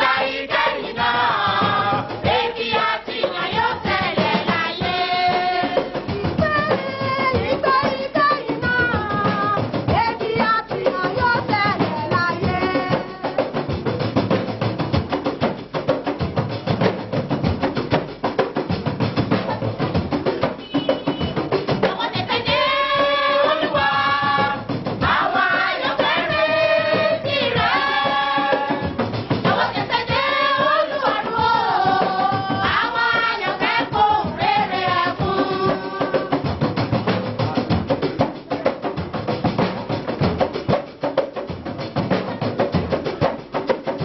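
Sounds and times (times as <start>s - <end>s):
church choir singing: 0.0s - 5.9s, 21.9s - 36.4s
drum beat: 0.0s - 44.0s.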